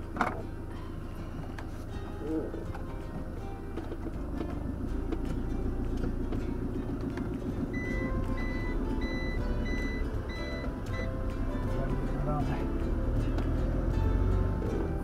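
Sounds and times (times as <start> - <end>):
motorhome engine running: 0.0 - 15.0
high electronic warning beep: 7.8 - 11.2.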